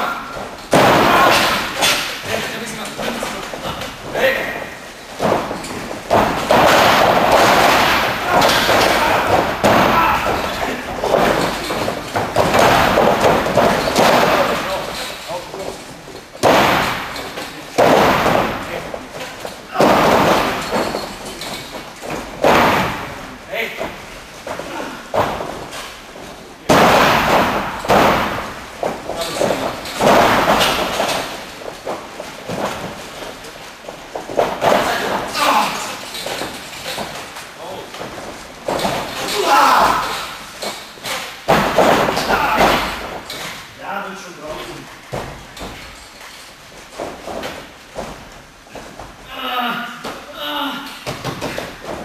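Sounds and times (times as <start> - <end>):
bodies thudding onto padded floor: 0.0 - 15.7, 16.3 - 43.7, 45.0 - 46.0
voices: 7.6 - 12.0, 34.6 - 36.1, 39.2 - 40.4, 49.3 - 51.0.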